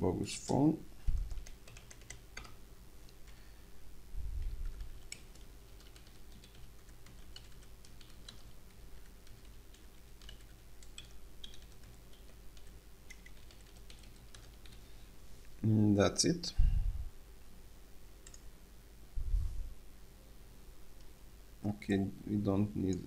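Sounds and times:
steady low hum: 0:00.0 - 0:23.0
keyboard typing clicks: 0:01.2 - 0:02.6, 0:04.6 - 0:14.8, 0:18.2 - 0:18.4.

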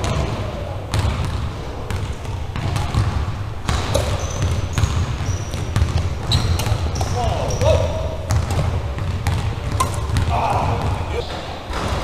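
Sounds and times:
low rumble in hall: 0:00.0 - 0:03.7
sneakers squeaking: 0:00.0 - 0:12.0
racket hitting shuttlecock: 0:02.1 - 0:11.1.

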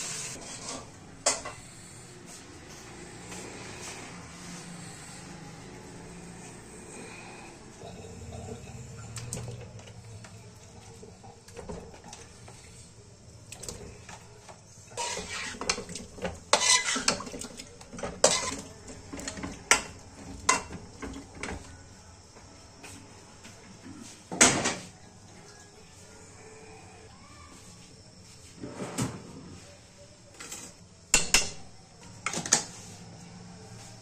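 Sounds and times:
metal spoon scraping steel pan: 0:00.0 - 0:01.6, 0:14.9 - 0:15.9, 0:16.5 - 0:17.2, 0:18.2 - 0:18.7.

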